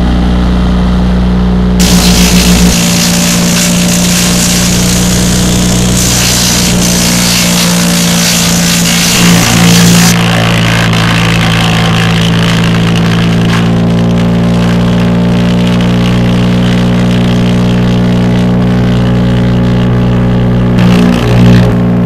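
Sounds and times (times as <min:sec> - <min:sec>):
chipper engine running: 0:00.0 - 0:22.0
loud rushing hiss: 0:01.8 - 0:13.6.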